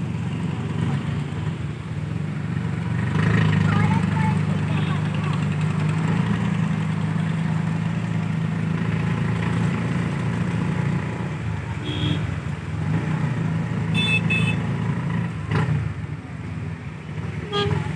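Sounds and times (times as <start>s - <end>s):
small vehicle engine running: 2.7s - 11.1s
horn toots: 11.8s - 12.4s, 13.9s - 14.7s, 17.4s - 17.9s.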